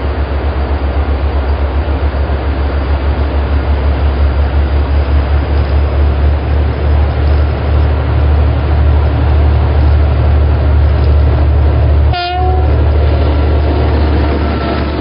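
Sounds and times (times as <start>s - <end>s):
diesel locomotive engine rumble: 0.0s - 15.0s
wheel and rail noise: 0.0s - 15.0s
brief horn-like note: 12.1s - 12.8s.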